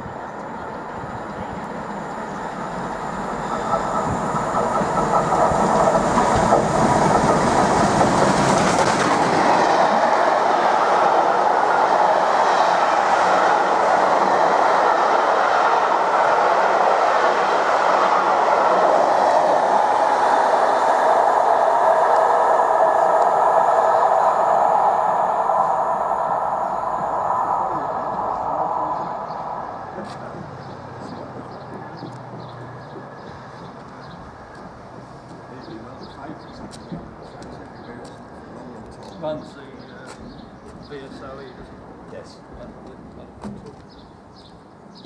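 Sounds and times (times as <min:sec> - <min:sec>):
train passing: 0:00.0 - 0:45.0.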